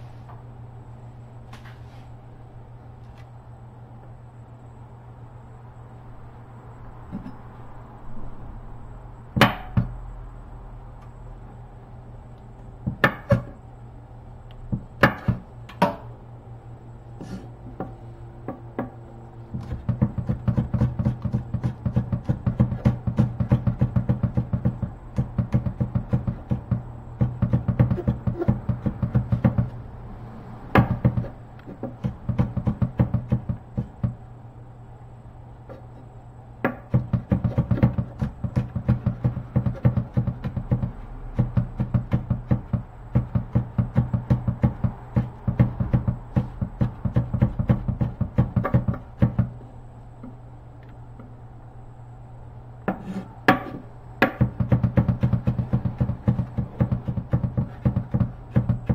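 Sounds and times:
steady low hum: 0.0s - 58.9s
knife chopping on wooden board: 19.6s - 29.7s, 52.9s - 58.9s.

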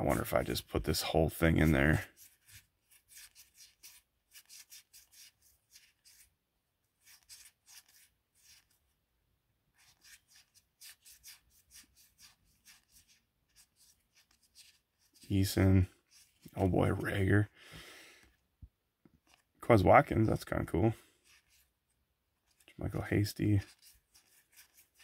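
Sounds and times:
trading cards swishing: 1.6s - 6.3s, 7.0s - 8.8s, 9.8s - 15.3s, 22.5s - 25.0s.

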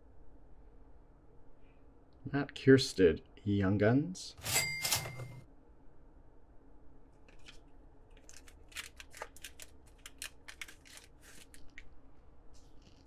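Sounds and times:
cards rustling: 7.2s - 12.0s
foil pack crinkling and tearing: 7.3s - 12.0s.

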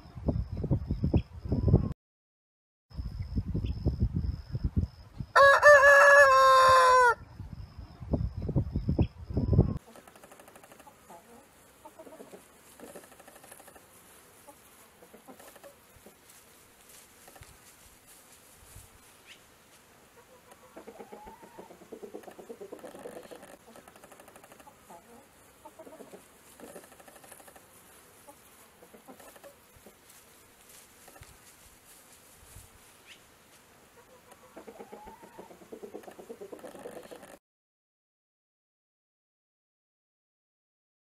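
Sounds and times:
chickens clucking: 9.5s - 16.3s, 20.1s - 30.0s, 33.9s - 37.4s.

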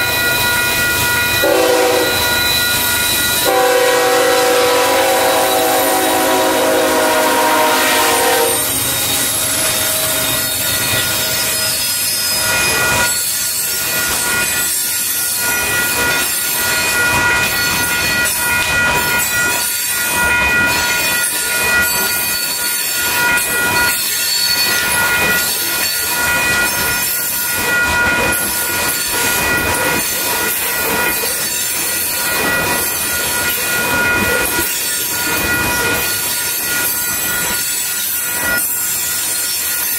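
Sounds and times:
train cars clattering wheels: 0.0s - 39.9s
freight train horn: 1.4s - 2.3s, 3.4s - 8.8s.

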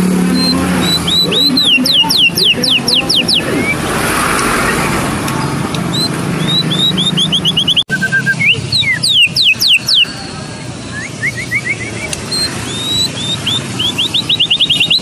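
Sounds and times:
street traffic rumble: 0.0s - 15.0s
bird singing whistles: 0.3s - 3.8s, 5.9s - 10.1s, 10.8s - 15.0s.

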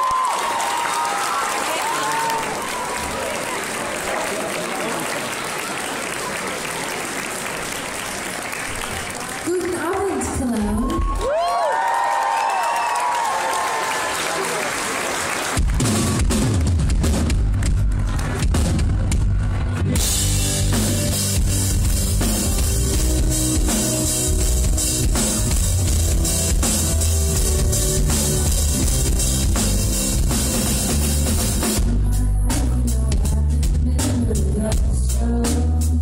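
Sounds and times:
drum kit: 15.4s - 36.0s
low bass: 15.7s - 36.0s.

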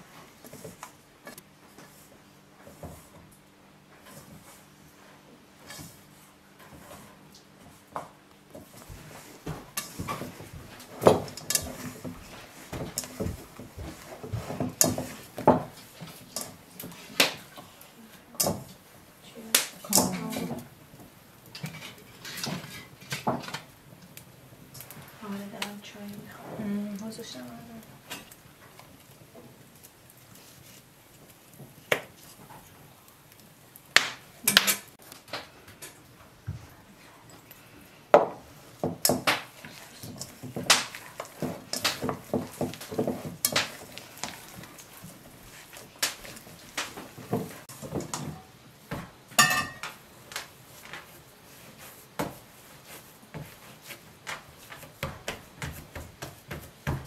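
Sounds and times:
bowl and utensils clinking: 49.4s - 50.0s.

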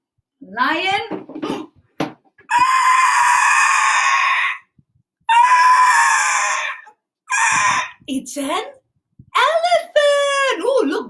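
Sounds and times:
elephant trumpeting: 5.3s - 8.0s.

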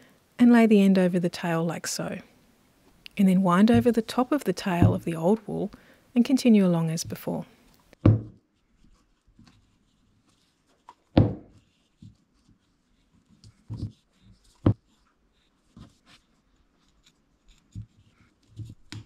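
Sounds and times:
faint rustling of wool: 8.5s - 18.9s.

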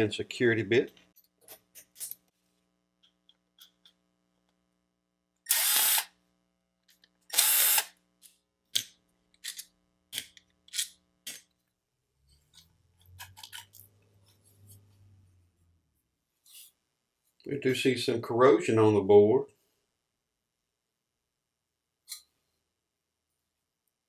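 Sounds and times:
cordless electric screwdriver: 5.5s - 6.1s, 7.3s - 7.9s.

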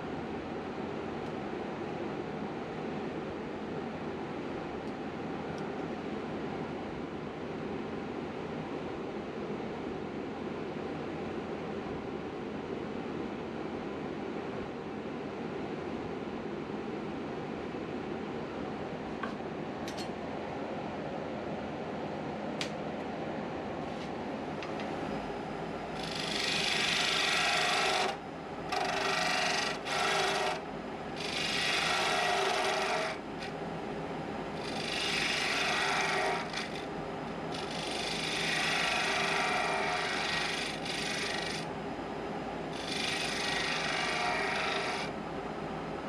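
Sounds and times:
wood lathe running: 25.9s - 33.6s, 34.6s - 36.9s, 37.5s - 41.7s, 42.7s - 45.2s
turning tool scraping wood: 26.0s - 30.6s, 31.2s - 33.6s, 34.6s - 36.9s, 37.5s - 41.7s, 42.8s - 45.1s.

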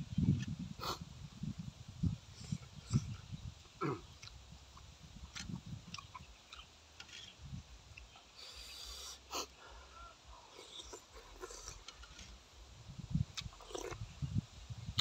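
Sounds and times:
mouth clicks: 2.4s - 7.3s, 10.5s - 12.3s
chewing: 3.8s - 7.3s, 10.5s - 12.3s, 13.3s - 14.0s
breathing through the nose: 8.4s - 11.8s
man slurping soup: 10.6s - 11.9s.

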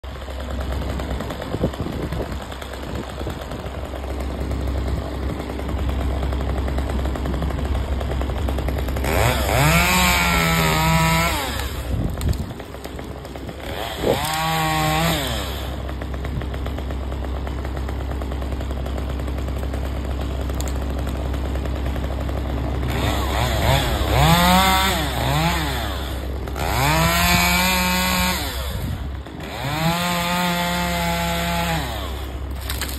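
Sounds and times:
chainsaw idling and revving: 0.0s - 32.9s.

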